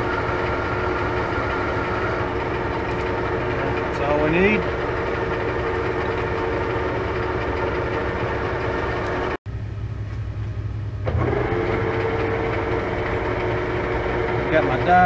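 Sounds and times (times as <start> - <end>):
metal lathe gear whine: 0.0 - 9.4
low hum of phase converter: 0.0 - 15.0.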